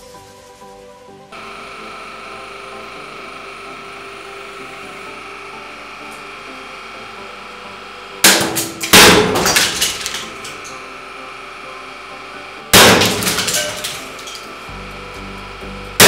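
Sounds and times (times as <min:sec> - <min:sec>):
steady hum: 0:01.3 - 0:16.0
plastic boards cracking under press: 0:08.2 - 0:10.8, 0:12.7 - 0:14.6.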